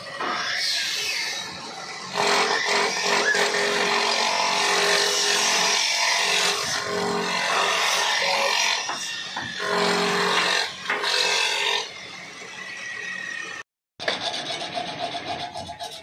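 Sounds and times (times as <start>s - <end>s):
lathe cutter shaving wood: 2.1s - 11.9s.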